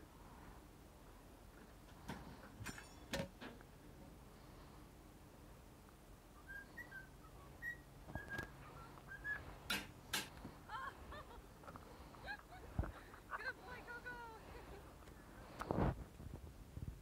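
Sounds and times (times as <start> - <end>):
cockatiel whistling: 6.4 - 9.4.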